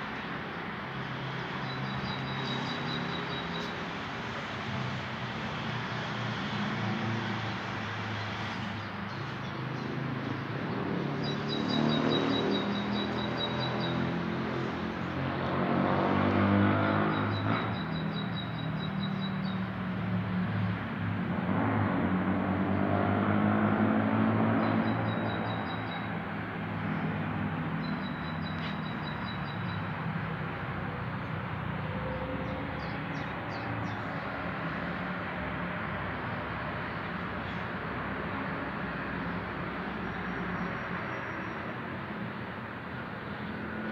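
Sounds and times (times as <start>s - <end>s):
street background noise: 0.0s - 43.9s
birds chirping: 0.1s - 3.9s, 10.6s - 15.6s, 24.5s - 31.4s, 32.1s - 34.4s.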